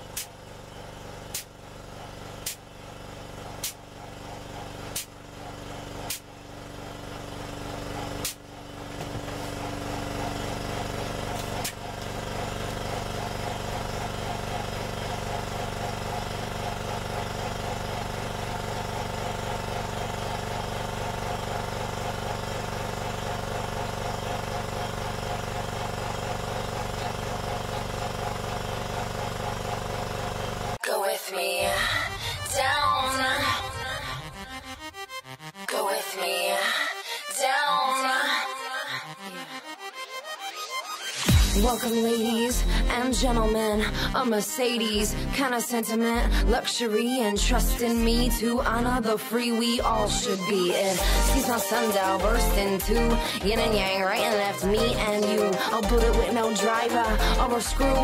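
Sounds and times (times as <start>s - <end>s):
hydraulic press humming: 0.0s - 30.8s, 50.8s - 58.0s.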